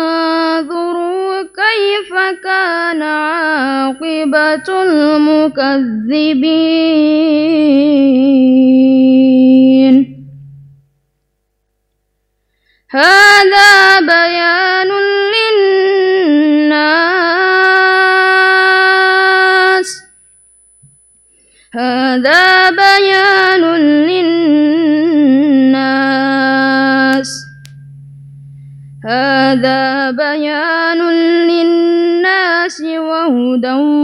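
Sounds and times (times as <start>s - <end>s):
man chanting melodically: 26.0s - 30.2s.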